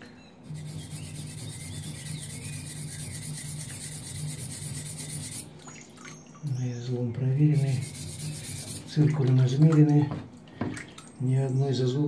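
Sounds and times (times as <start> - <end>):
stone scraping on abrasive block: 0.5 - 5.5, 7.6 - 8.9.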